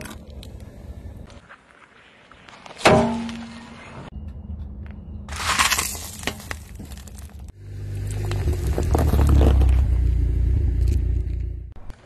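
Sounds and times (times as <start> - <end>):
tyre crunching something brittle: 5.3 - 12.0
low vehicle rumble: 6.9 - 11.9.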